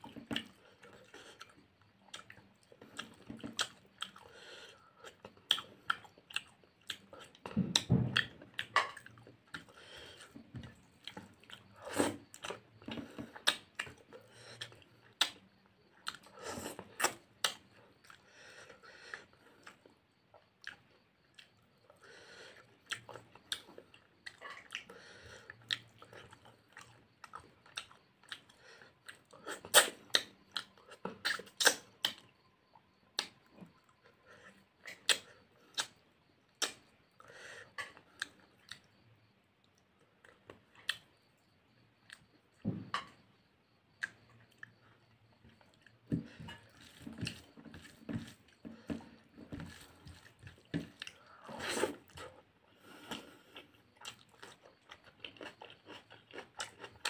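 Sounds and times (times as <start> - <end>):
chewing and mouth smacking: 0.0 - 4.3, 5.0 - 18.2, 22.8 - 32.3, 33.2 - 36.0, 43.9 - 57.0.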